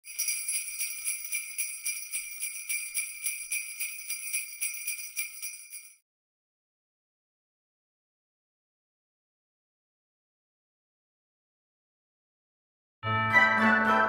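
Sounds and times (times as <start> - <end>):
sleigh bells jingling: 0.0 - 6.0.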